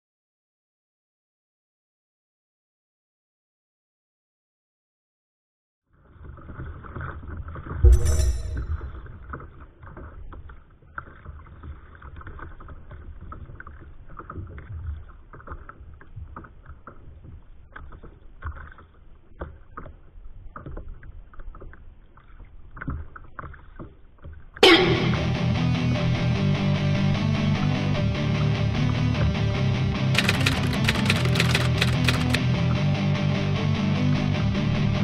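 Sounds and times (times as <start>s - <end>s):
rock music with electric guitar: 24.6s - 35.0s.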